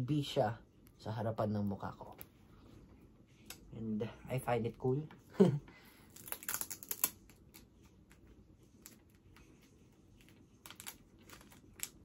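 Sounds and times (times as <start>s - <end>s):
plastic packaging crinkling: 6.1s - 7.4s.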